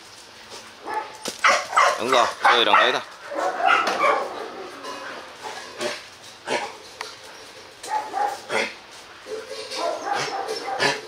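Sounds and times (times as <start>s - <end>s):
dogs yipping and whining: 9.3s - 11.0s.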